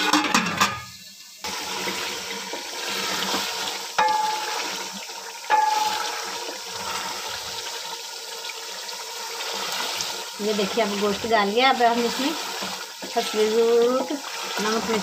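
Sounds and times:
chicken sizzling in hot fat: 0.0 - 15.0
wooden spoon knocking on pot: 4.0 - 4.7, 5.5 - 6.2.

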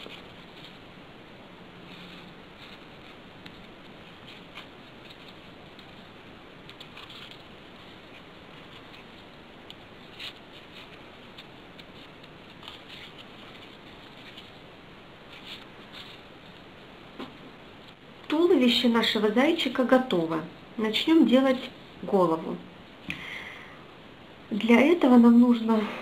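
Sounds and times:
paper rustling: 1.8 - 14.6, 15.3 - 18.0.

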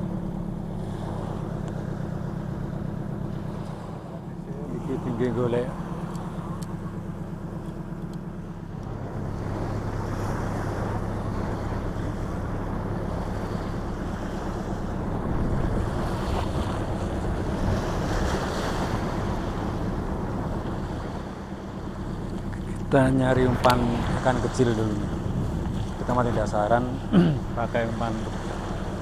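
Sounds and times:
low steady hum: 0.0 - 29.0
small waves washing onto sand: 8.9 - 29.0
wind on microphone: 9.0 - 21.4, 23.3 - 26.8.

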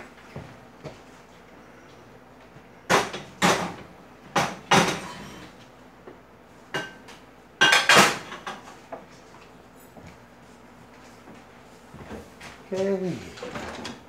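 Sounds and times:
dishes and cutlery clattering: 4.7 - 5.5, 7.6 - 8.7.

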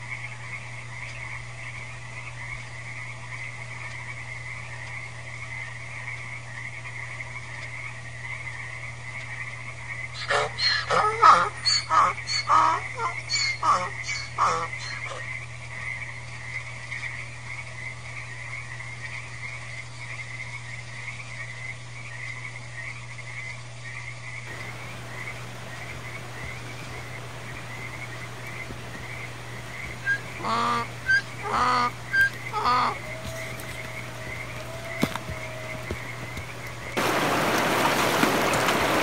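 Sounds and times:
chorus of animal calls: 10.1 - 15.4, 24.5 - 39.0
louder pitched calls: 10.2 - 15.2, 24.5 - 39.0.

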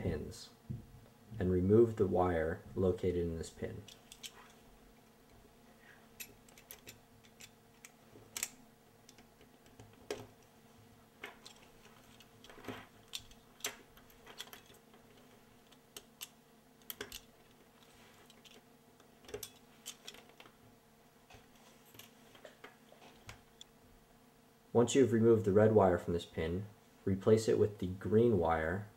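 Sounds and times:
faint steady hum: 0.0 - 28.9
small plastic and metal clicks: 15.6 - 17.3.

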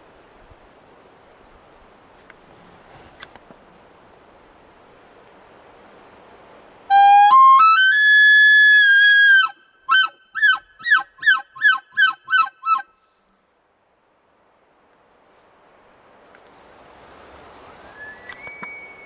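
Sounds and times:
elk bugling whistle: 6.9 - 12.9, 17.8 - 19.0.

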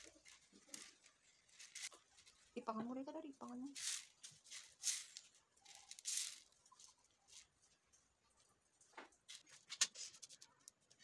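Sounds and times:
coffee beans rustling on a tray: 0.0 - 2.6, 3.6 - 7.7
sharp clicks of beans: 3.8 - 6.6.

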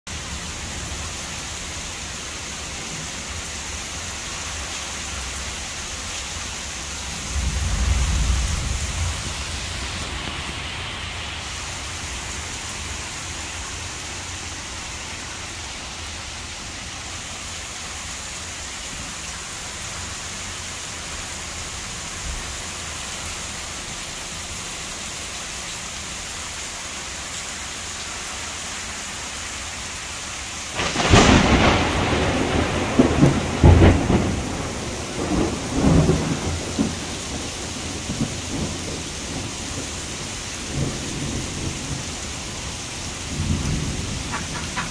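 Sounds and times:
heavy rain falling: 0.1 - 44.9
thunderclap rumbling: 6.9 - 13.0, 30.8 - 44.9.

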